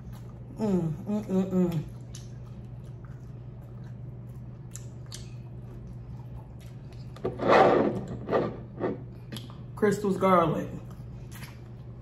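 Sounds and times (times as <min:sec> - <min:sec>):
steady low hum: 0:00.0 - 0:12.0
chewing and biting: 0:01.6 - 0:07.2, 0:10.8 - 0:12.0
wet mouth clicks: 0:04.7 - 0:05.4.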